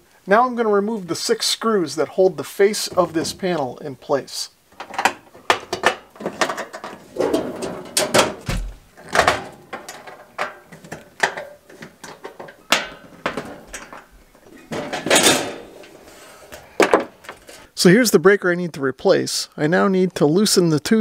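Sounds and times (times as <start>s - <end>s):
sheet metal cover scraping: 2.8s - 3.6s, 6.2s - 11.0s.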